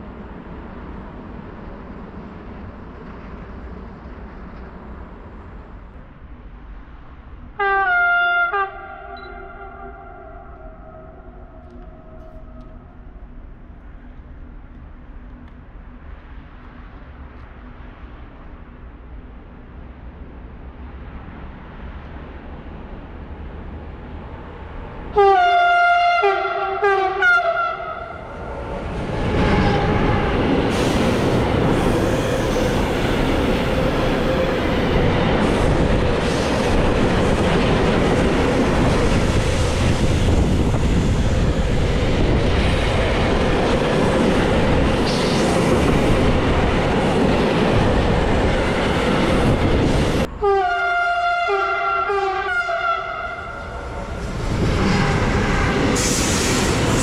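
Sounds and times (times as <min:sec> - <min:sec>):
train wheels rumbling on rail: 0:00.0 - 0:57.0
locomotive horn blasts: 0:07.6 - 0:11.3, 0:25.2 - 0:28.2, 0:50.4 - 0:53.7.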